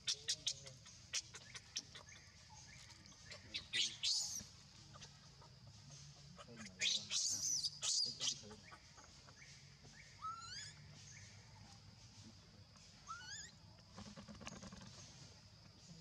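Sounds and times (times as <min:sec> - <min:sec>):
baby monkey squealing: 0:06.8 - 0:08.4, 0:10.2 - 0:10.8, 0:13.1 - 0:13.6.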